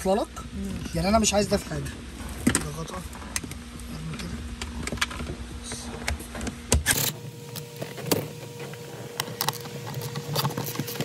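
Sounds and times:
faint steady hum: 0.0 - 11.0
plastic dashboard parts handled: 7.4 - 11.0.

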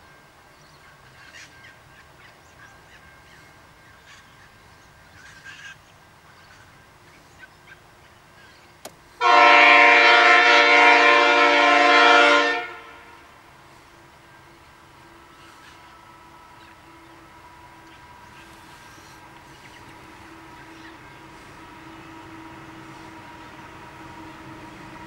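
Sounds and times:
train air horn blast: 9.2 - 13.4.

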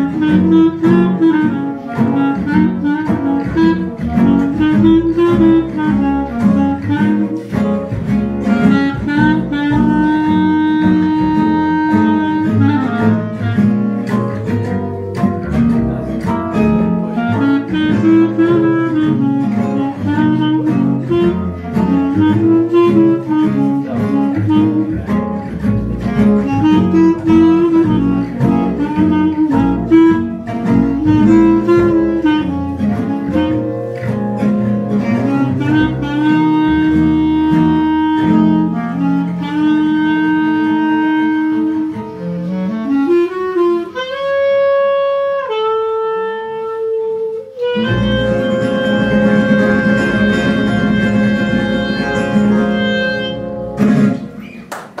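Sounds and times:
strummed acoustic guitars: 0.0 - 39.6, 47.5 - 55.0
clarinet melody: 0.0 - 55.0
double bass: 0.0 - 55.0.

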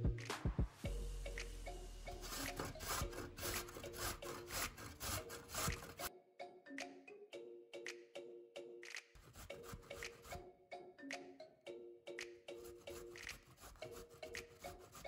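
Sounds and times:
carrot rasping on grater: 2.2 - 6.1, 9.2 - 10.4, 12.7 - 15.0.

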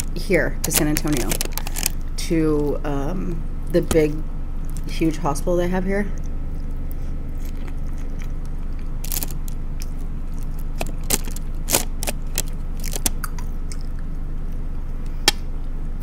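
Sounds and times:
low hum: 0.0 - 16.0
person chewing: 0.7 - 2.0, 6.1 - 15.0.

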